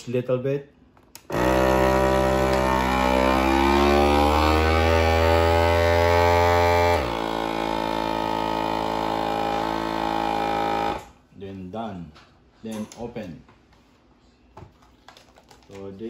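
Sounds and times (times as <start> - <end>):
vacuum sealer pump humming: 1.2 - 11.2.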